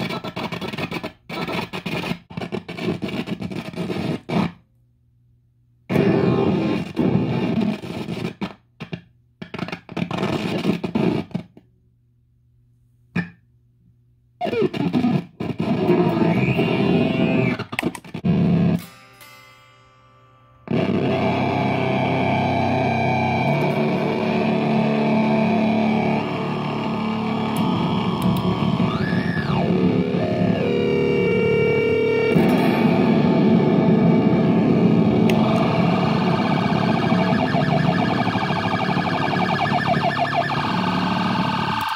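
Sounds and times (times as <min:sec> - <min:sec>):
distorted electric guitar: 0:00.0 - 0:04.6, 0:05.9 - 0:11.6, 0:14.4 - 0:19.6, 0:20.3 - 0:41.9
tone sweeping up and down: 0:20.7 - 0:41.9.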